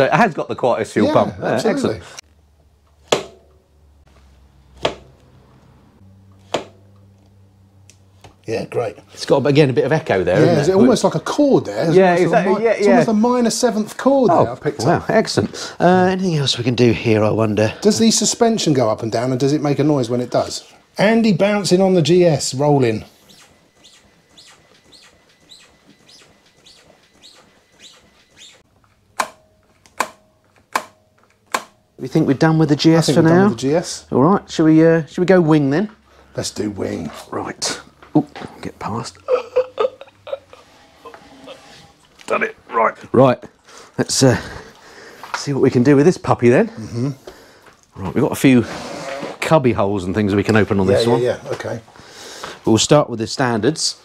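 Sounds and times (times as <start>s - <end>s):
motorcycle suspension squeaking: 23.1s - 28.7s, 40.2s - 42.2s.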